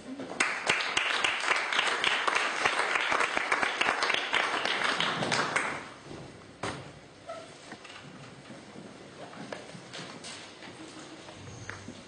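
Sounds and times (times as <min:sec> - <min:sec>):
audience applauding: 0:00.4 - 0:05.9.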